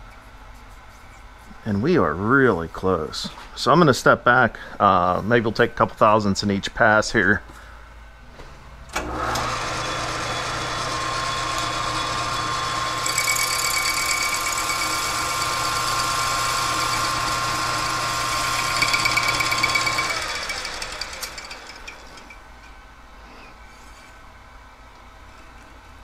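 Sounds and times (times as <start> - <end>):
lathe motor hum and whine: 9.0 - 22.3.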